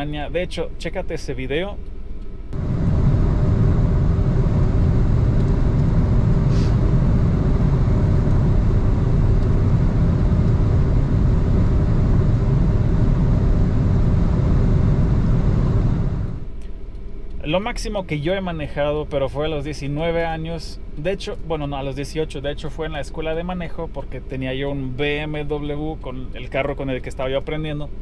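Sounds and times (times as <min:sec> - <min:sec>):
constant hum: 0:00.0 - 0:28.0
car driving at speed: 0:02.5 - 0:16.6.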